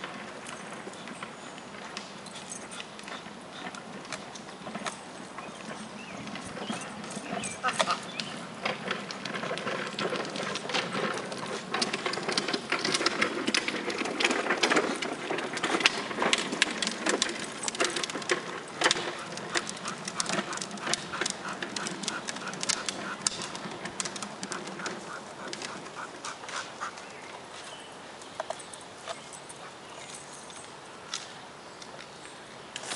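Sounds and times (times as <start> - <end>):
dog scuffling with rubber tube: 1.8 - 27.8.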